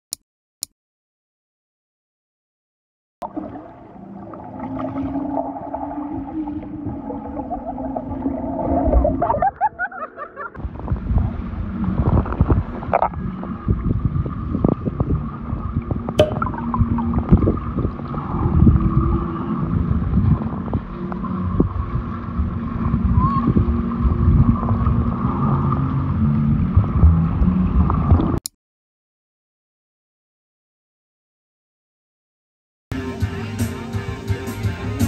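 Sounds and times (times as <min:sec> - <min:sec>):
underwater bubbling rumble: 0:03.2 - 0:09.9, 0:10.6 - 0:28.4.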